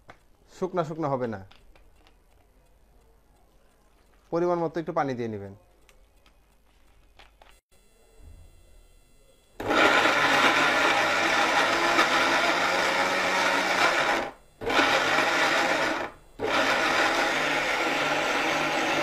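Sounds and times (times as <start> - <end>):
mixer grinder running: 9.6 - 19.0.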